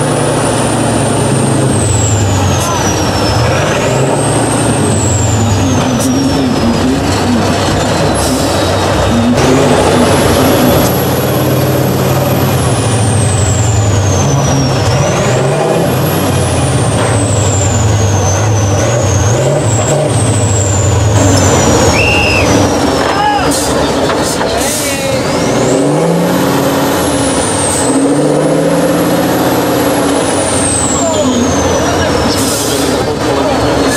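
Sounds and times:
truck diesel engine under load: 0.0s - 33.9s
high rising whistle: 21.6s - 22.7s.

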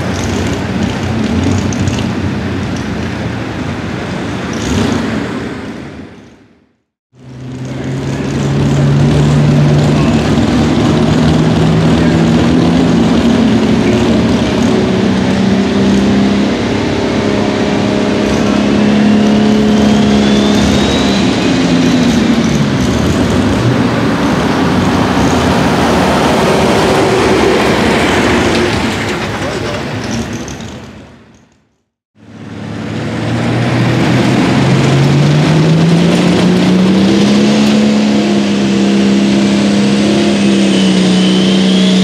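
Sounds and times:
turbo whine rising: 7.2s - 29.2s, 32.2s - 42.0s
diesel tractor engine running: 7.2s - 31.2s.

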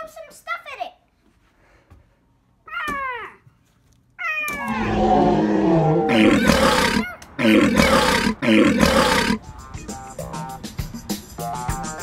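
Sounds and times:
falling screech: 4.5s - 7.0s
monster roaring: 4.6s - 9.4s.

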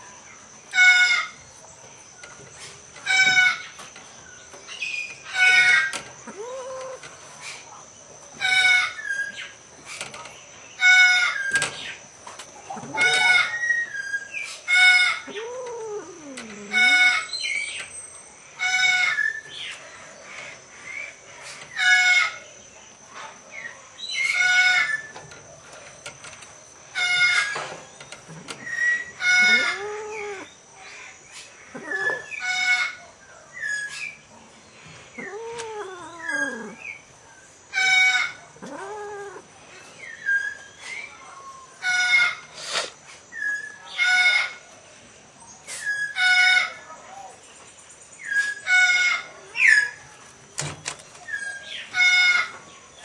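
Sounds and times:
drawn-out rising falling animal calls: 28.3s - 30.5s, 35.2s - 36.9s, 38.2s - 39.5s.

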